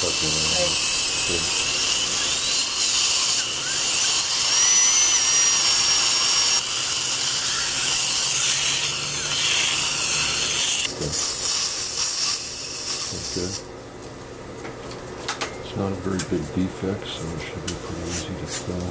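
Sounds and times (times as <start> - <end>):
dental drill whining: 0.0 - 13.7.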